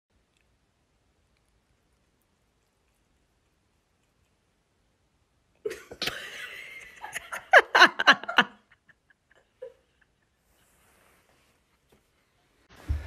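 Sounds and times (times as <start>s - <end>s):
person laughing: 5.7s - 10.2s.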